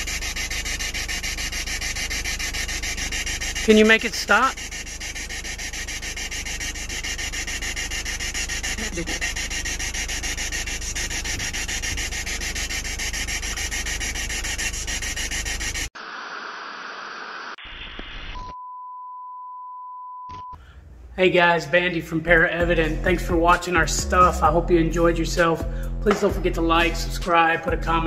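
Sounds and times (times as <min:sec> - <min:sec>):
tv static hiss: 0:16.0 - 0:18.5.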